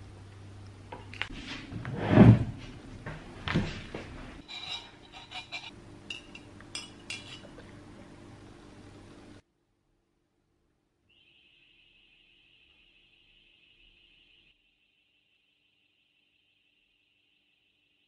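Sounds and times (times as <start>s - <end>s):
dishes and cutlery clinking: 4.4s - 7.6s.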